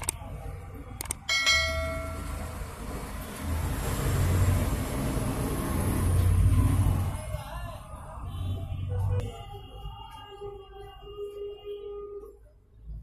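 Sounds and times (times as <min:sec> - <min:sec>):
bell ding: 0:01.3 - 0:02.6.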